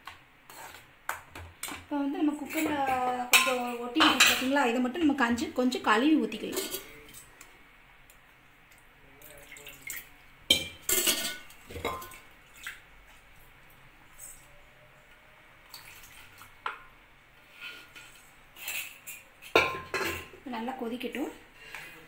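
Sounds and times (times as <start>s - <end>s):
spoon clinking against metal pan: 3.3s - 4.5s.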